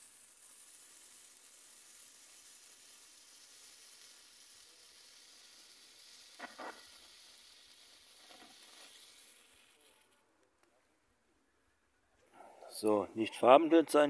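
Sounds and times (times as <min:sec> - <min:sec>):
firework fountain hissing: 0:00.0 - 0:10.3.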